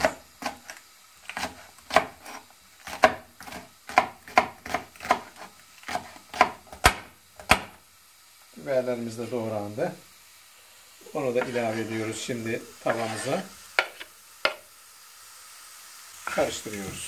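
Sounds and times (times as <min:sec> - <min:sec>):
knife chopping on wooden board: 0:00.0 - 0:07.8.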